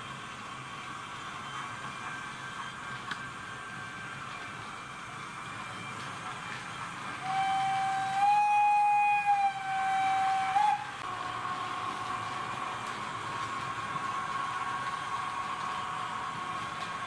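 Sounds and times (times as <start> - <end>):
electric locomotive running hum: 0.0 - 17.0
locomotive horn blast: 7.2 - 11.1.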